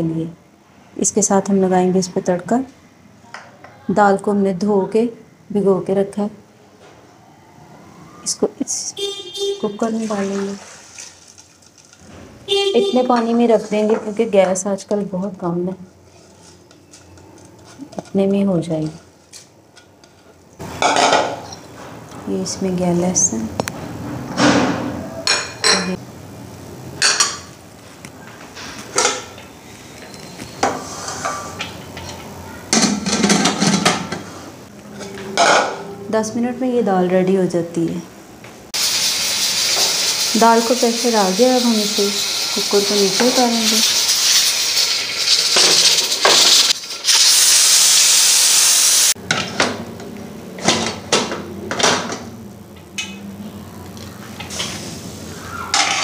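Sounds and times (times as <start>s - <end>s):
kitchen utensils clinking: 19.7s - 21.8s, 24.6s - 26.0s, 28.7s - 34.3s, 34.9s - 36.0s, 39.4s - 47.2s, 55.7s - 56.0s
pressure cooker steam hissing: 38.8s - 49.2s.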